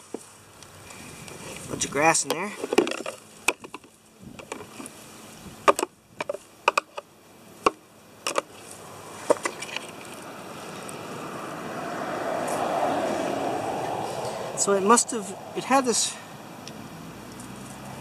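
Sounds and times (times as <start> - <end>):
plastic clicks and knocks: 2.6 - 4.7, 5.7 - 8.5
rushing noise: 10.3 - 17.2.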